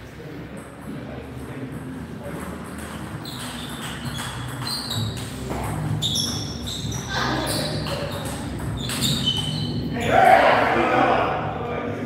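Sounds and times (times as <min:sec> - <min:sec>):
table tennis ball hits: 0:02.2 - 0:09.5.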